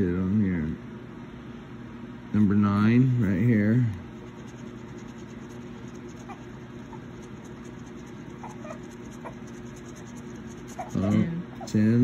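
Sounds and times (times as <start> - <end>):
steady low hum: 0.0 - 12.0
coin scratching lottery ticket: 4.1 - 11.2.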